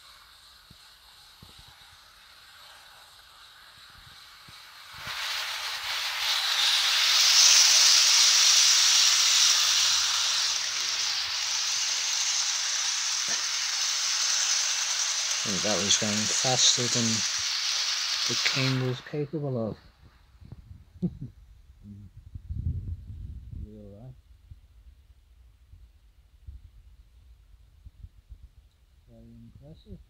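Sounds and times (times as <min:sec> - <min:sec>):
model train hissing on rails: 0:00.0 - 0:20.1.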